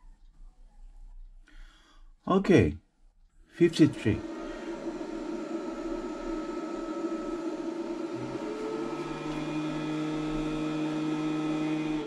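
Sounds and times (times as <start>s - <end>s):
cooling fan whirring: 3.6s - 12.0s.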